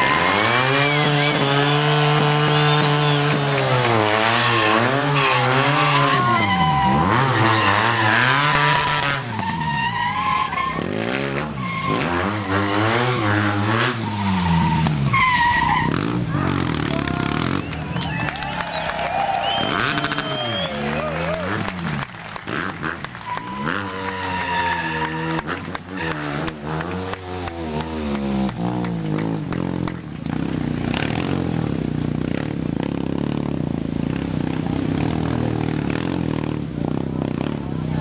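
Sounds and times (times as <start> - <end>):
motorcycle engine revving: 0.0 - 18.8, 19.5 - 38.0
tyres squealing: 4.5 - 18.8.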